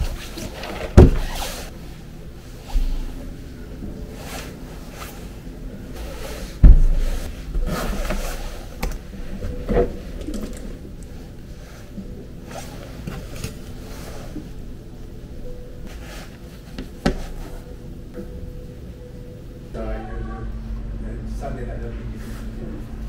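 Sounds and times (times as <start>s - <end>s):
jacket rustling: 4.1s - 10.2s.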